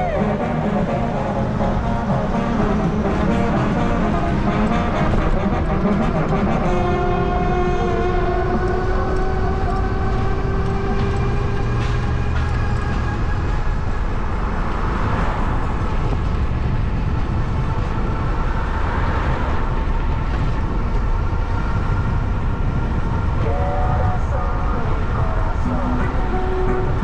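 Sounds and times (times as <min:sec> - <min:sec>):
street traffic rushing: 0:00.0 - 0:27.0
wind noise: 0:00.0 - 0:27.0.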